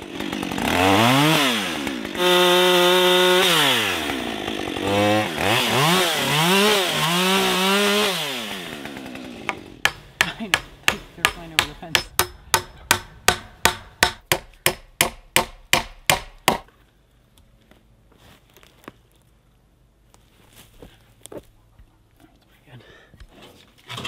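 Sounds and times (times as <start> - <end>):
chainsaw engine winding down: 0.0 - 9.8.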